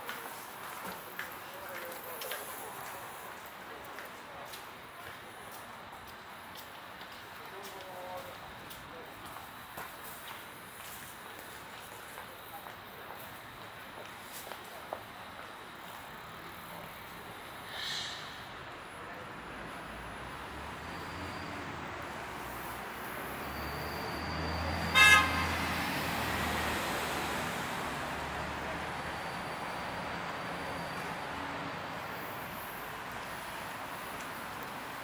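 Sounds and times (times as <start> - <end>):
street traffic: 0.0 - 35.0
vehicle passing: 17.8 - 34.9
short car horn toot: 24.9 - 25.6.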